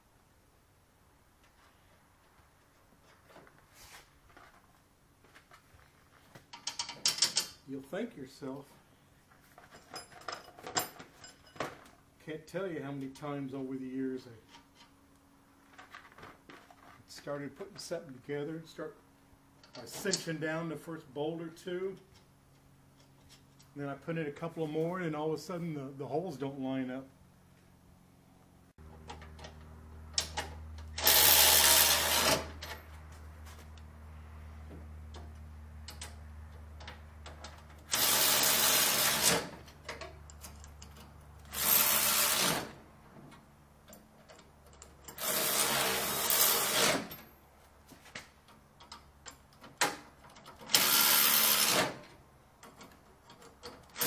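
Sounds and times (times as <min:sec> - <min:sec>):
cordless power tool running: 0:30.9 - 0:32.6.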